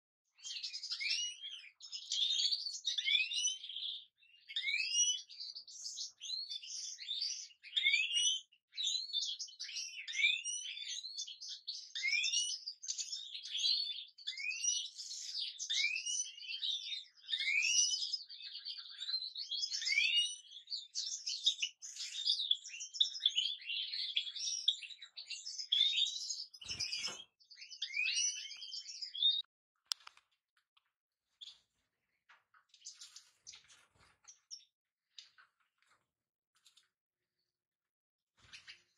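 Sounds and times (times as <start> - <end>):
goldfinch twittering: 21.0 - 29.4.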